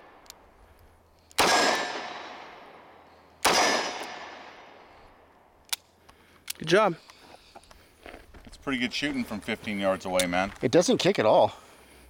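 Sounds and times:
revolver shots echoing: 1.4 - 4.8.

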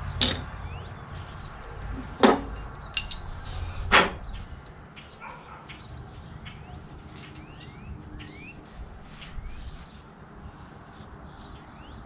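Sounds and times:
birds chirping faintly: 0.0 - 12.0
metal tools clinking and knocking: 0.2 - 0.6, 2.0 - 3.4, 7.2 - 7.6.

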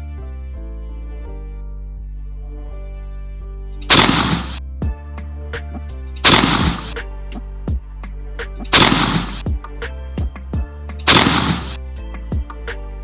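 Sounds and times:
background music with steady beat: 0.0 - 13.0
shotgun shots: 3.9 - 4.6, 6.2 - 7.0, 8.7 - 9.5, 11.1 - 11.8.

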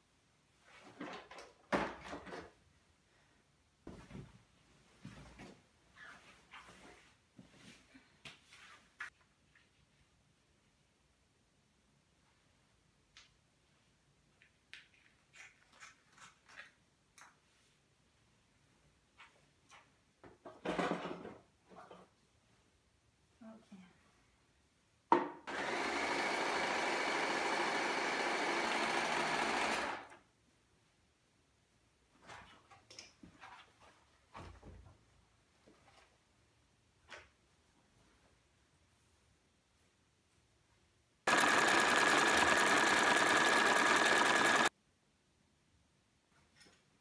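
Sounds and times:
sewing machine stitching: 25.5 - 30.2, 41.3 - 44.7.

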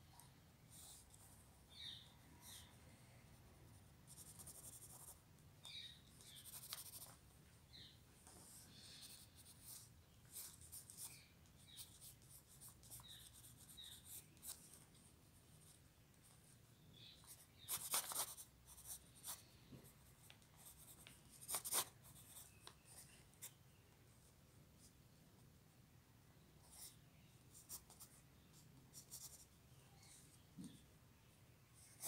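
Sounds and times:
pencil scratching on paper: 4.1 - 7.2, 8.2 - 15.8, 17.2 - 19.4, 20.6 - 23.6.

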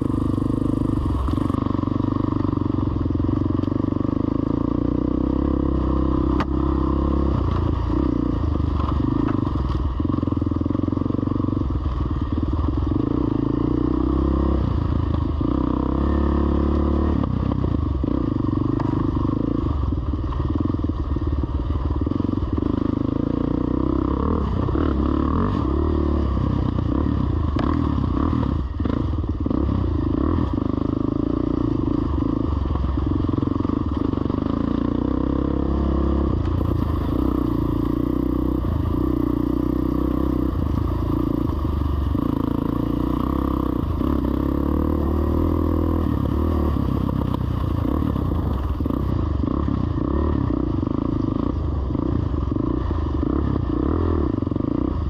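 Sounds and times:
off-road vehicle engine running: 0.0 - 55.0.

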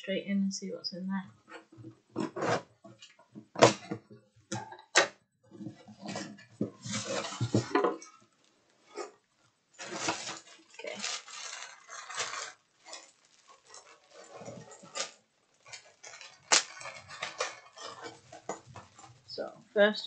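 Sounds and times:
packaging rustling: 6.1 - 9.1, 9.8 - 19.6.

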